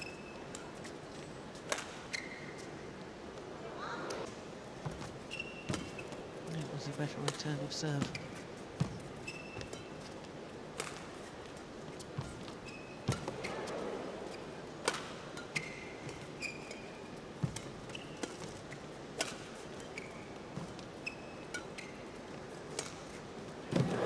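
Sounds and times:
shoes squeaking on court: 0:00.0 - 0:02.8, 0:04.8 - 0:24.0
racket hitting shuttlecock: 0:01.7 - 0:02.0, 0:14.8 - 0:16.3, 0:19.2 - 0:19.8.

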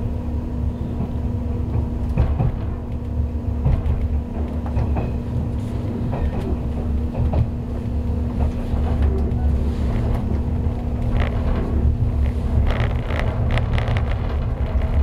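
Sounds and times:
train wheels rumbling on rails: 0:00.0 - 0:15.0
steady hum: 0:06.6 - 0:15.0.

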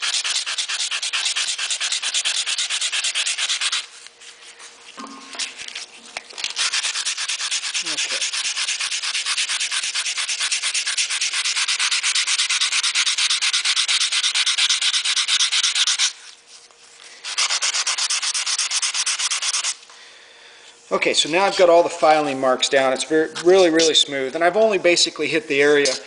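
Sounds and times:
sandpaper rubbing on metal: 0:00.0 - 0:19.8, 0:21.2 - 0:24.1.

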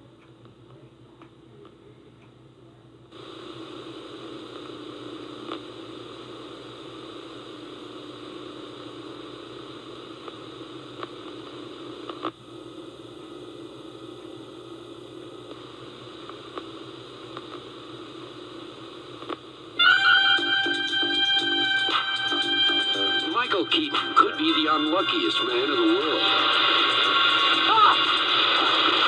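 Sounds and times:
tape hiss and static: 0:00.0 - 0:29.0
faint clicks: 0:19.2 - 0:19.4.

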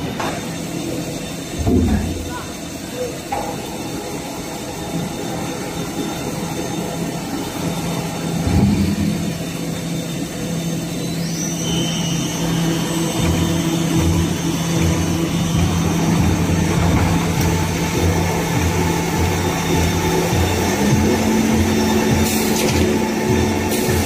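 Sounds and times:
veneer lathe motors humming: 0:00.0 - 0:24.0
low rhythmic pulsing: 0:03.8 - 0:24.0.

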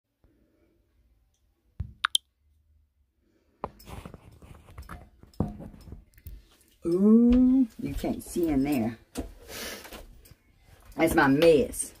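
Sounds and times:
phone rustling and scraping: 0:03.8 - 0:06.0.

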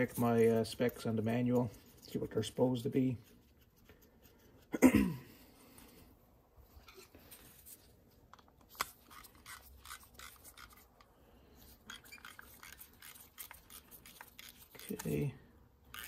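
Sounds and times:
faint metal scratching and clicks: 0:08.3 - 0:15.3.

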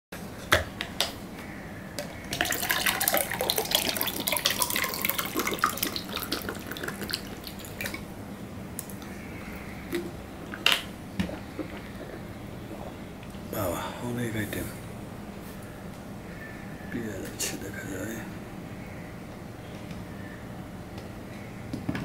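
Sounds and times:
water pouring into glass: 0:02.4 - 0:08.0.

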